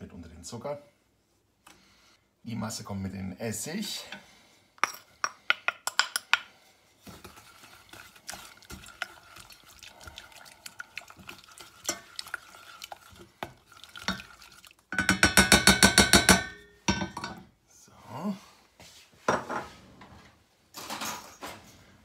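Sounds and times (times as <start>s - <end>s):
spoon scraping in pot: 7.0s - 15.4s
bowl tapping on pot: 14.9s - 17.3s
spoon knocking around pot: 14.9s - 17.3s.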